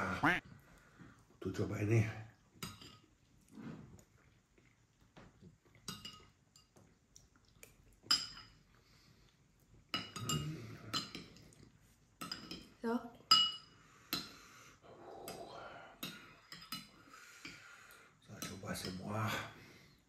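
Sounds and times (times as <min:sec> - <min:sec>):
metal spoon clinking on bowl: 0:09.9 - 0:11.4, 0:13.3 - 0:13.7.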